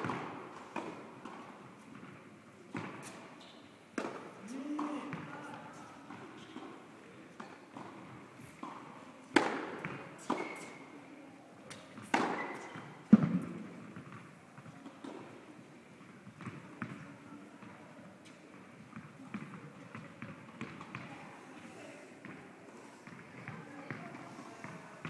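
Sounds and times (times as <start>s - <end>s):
tennis ball hits echoing: 4.0s - 5.3s, 8.6s - 10.8s, 11.7s - 14.3s
ball bouncing on court: 4.8s - 5.3s, 11.7s - 15.3s, 16.3s - 17.8s, 18.9s - 21.1s.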